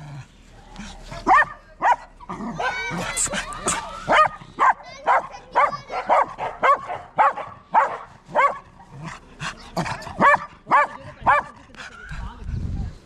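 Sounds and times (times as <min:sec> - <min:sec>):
puppy barking: 0:01.2 - 0:02.9, 0:03.7 - 0:08.8, 0:09.8 - 0:11.6.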